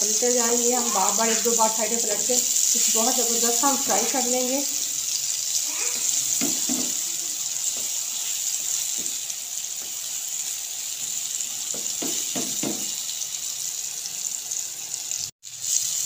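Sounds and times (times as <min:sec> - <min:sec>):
eggplant sizzling in oil: 0:00.0 - 0:16.0
spatula knocking in pan: 0:06.0 - 0:10.0, 0:11.0 - 0:13.0.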